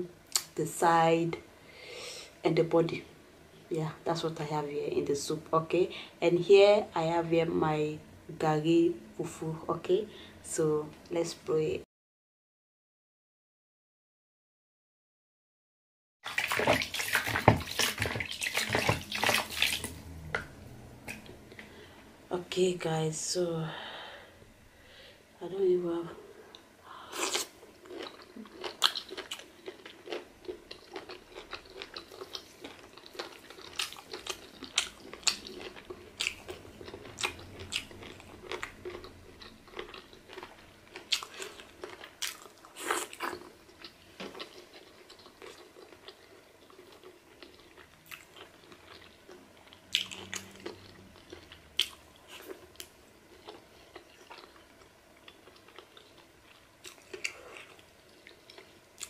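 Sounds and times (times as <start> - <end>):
chewing and biting: 27.2 - 59.0.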